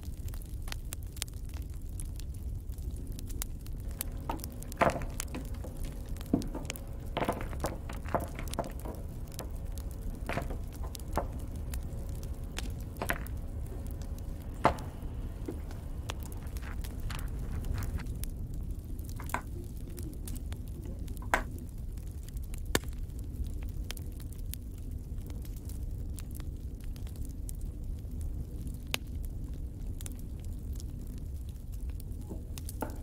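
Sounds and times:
low steady hum: 0.0 - 33.0.

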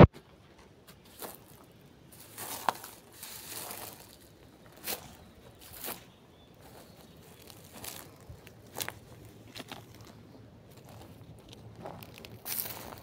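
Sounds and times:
crunchy footsteps: 0.0 - 13.0
scraping and brushing: 1.0 - 11.2.

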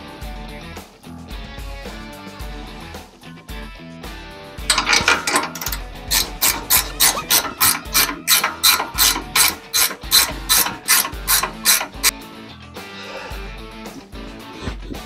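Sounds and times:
ratchet wrench clicking: 4.7 - 12.1.

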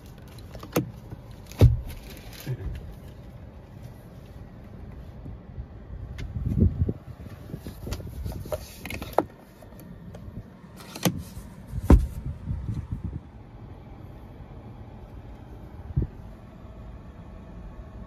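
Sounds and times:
dull knocks from handling camera: 11.8 - 12.2.

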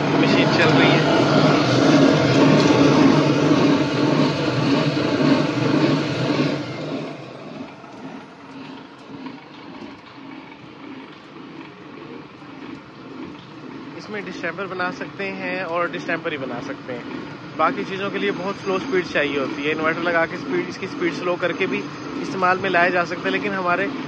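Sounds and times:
mixing machine motor humming: 0.0 - 24.0
stirrer spinning in metal drum: 0.0 - 24.0.

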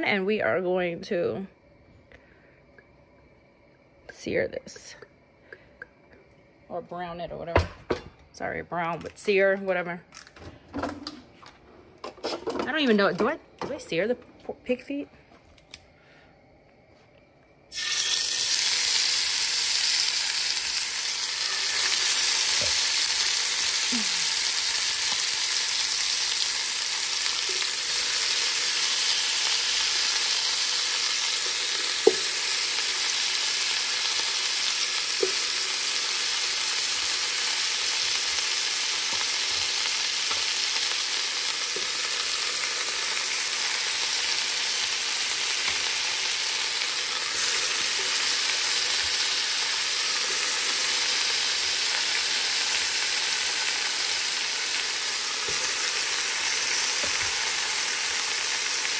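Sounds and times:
meat sizzling in hot oil: 17.7 - 58.9.

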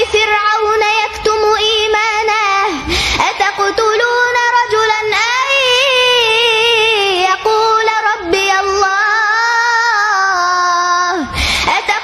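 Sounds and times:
girl reciting melodically: 0.0 - 12.0
girl breathing: 2.8 - 3.2, 11.2 - 11.8.

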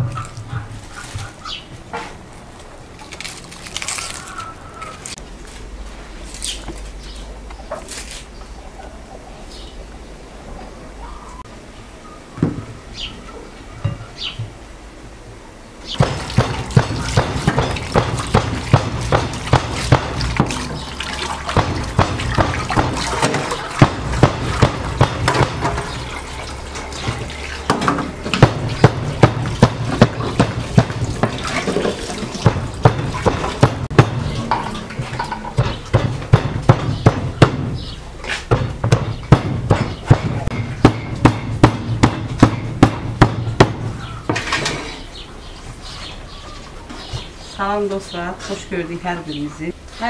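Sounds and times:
knife chopping on wooden board: 16.0 - 20.7, 35.6 - 37.7.

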